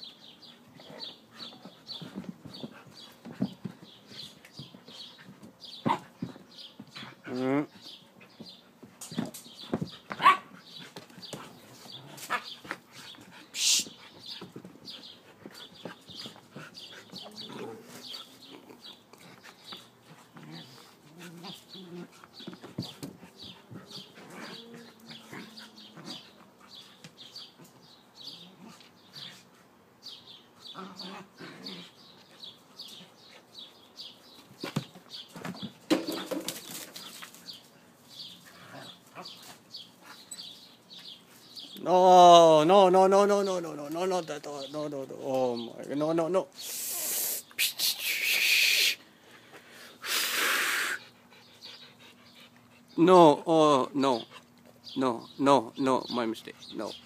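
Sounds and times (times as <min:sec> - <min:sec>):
dogs scuffling: 0:00.8 - 0:27.7, 0:32.2 - 0:41.8
dogs growling playfully: 0:15.6 - 0:26.8, 0:30.6 - 0:32.5, 0:38.3 - 0:40.5.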